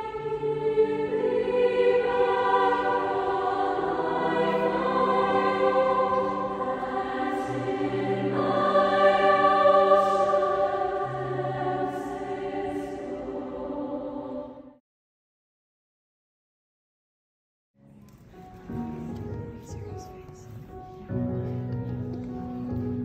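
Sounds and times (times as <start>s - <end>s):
choir singing held chords: 0.0s - 14.8s.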